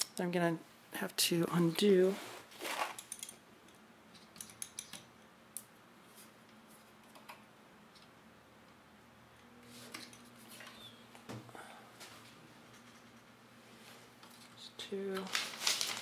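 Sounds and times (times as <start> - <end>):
soft rustle: 1.8 - 2.9.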